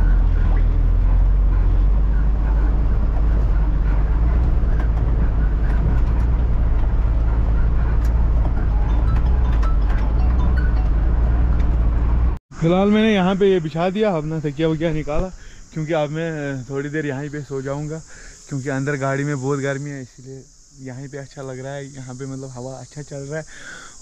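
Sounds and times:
truck engine droning: 0.0 - 14.9.

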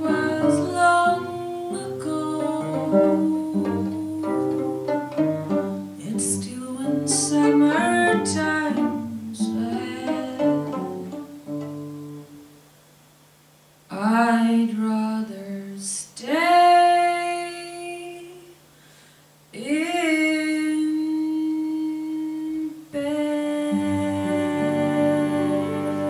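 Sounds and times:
woman singing: 0.0 - 5.0, 5.7 - 11.2, 13.9 - 18.6, 19.6 - 26.0
instrumental sustained chords: 23.7 - 26.0.

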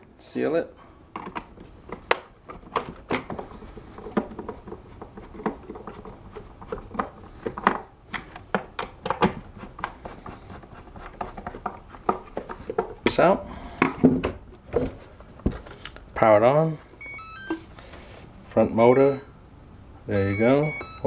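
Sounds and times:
hands handling plastic: 1.1 - 16.1.

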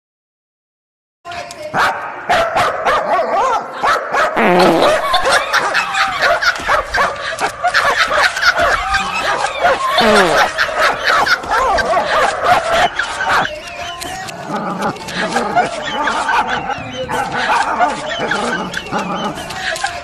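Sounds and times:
animals yelping: 1.8 - 20.0
scattered clicks: 10.6 - 16.6.

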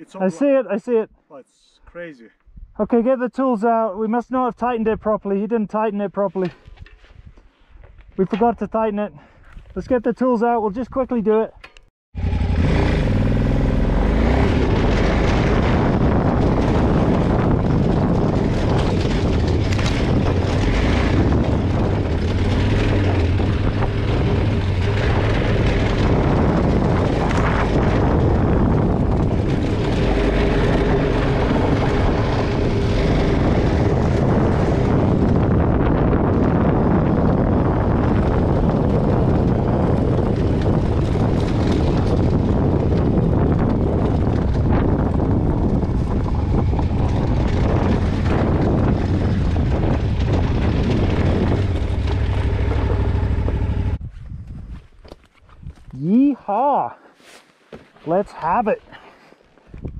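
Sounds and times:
wind rushing over microphone: 3.7 - 11.4, 12.2 - 56.4, 58.1 - 59.9
motorcycle engine running: 12.2 - 54.0.

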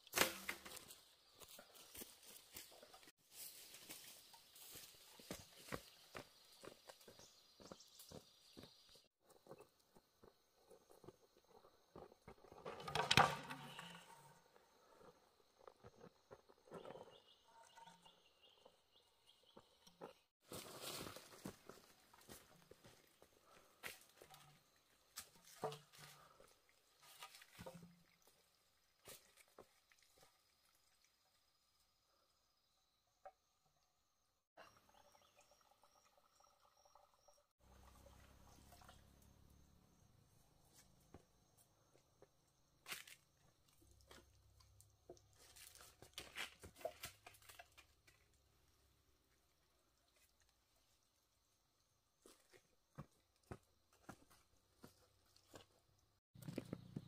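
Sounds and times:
dragging over dry leaves: 20.4 - 24.2.

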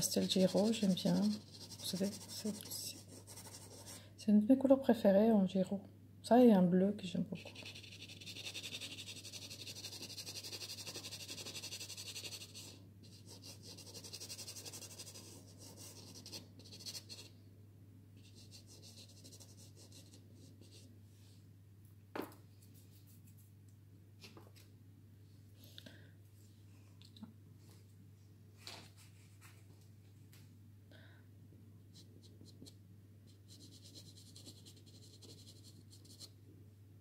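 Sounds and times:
pastel stick scratching on card: 0.2 - 3.8, 7.4 - 17.3, 33.3 - 36.3.

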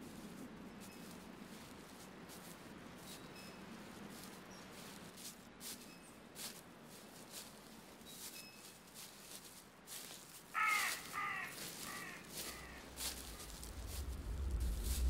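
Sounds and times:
crow cawing: 10.5 - 14.1
low rumble: 12.3 - 15.0.

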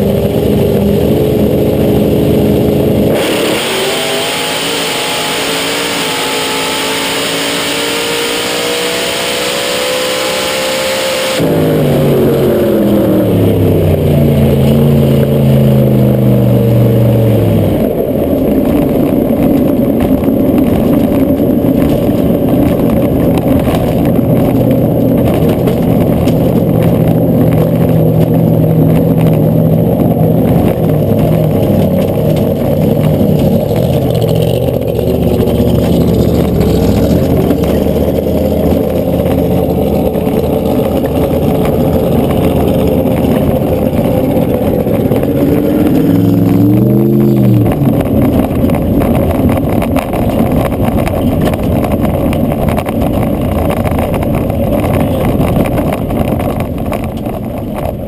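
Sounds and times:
race car engine revs falling: 3.0 - 15.7, 30.0 - 57.2.

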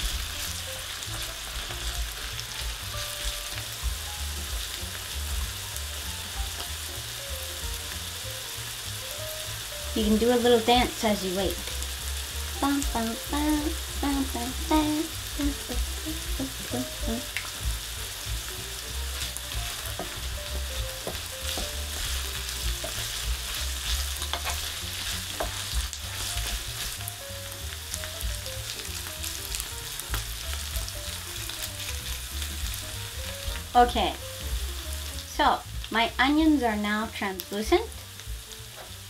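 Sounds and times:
meat and onions sizzling in pan: 0.0 - 39.0
spatula clicking on pan: 24.2 - 24.7.

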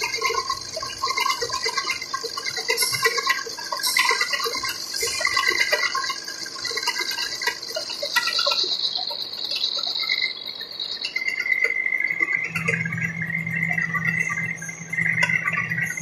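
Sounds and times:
gear-cutting machine hiss: 0.0 - 12.5.

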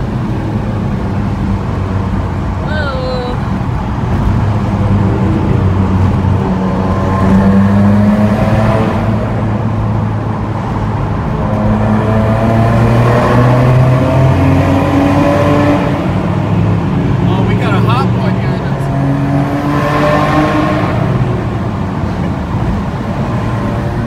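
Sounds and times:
car engine cruising from inside cabin: 0.0 - 24.0.

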